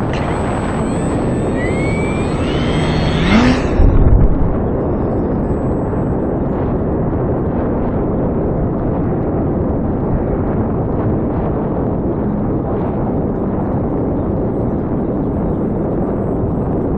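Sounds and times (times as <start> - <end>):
electric motor whine: 0.0 - 6.8
wind buffeting microphone: 0.0 - 16.9.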